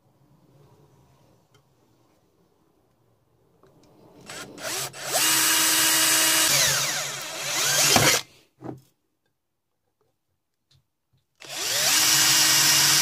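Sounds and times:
power drill whining: 0:04.2 - 0:08.3, 0:11.4 - 0:13.0.

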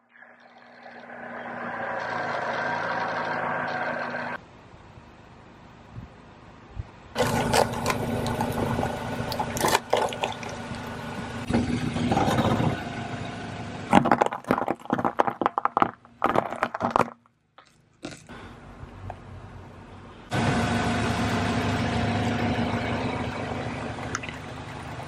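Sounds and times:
car engine idling: 0:00.4 - 0:04.4, 0:07.2 - 0:14.3, 0:19.2 - 0:25.0
tyre crushing sugar cubes: 0:13.9 - 0:18.3.

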